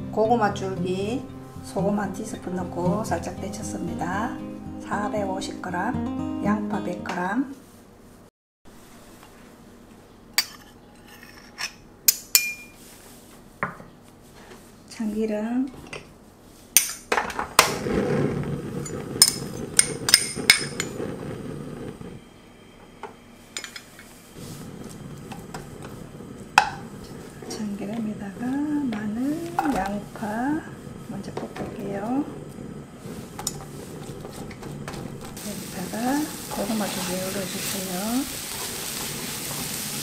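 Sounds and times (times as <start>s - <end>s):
glass bowls clinking: 18.8s - 21.0s, 23.5s - 24.1s
low scraping: 24.1s - 40.0s.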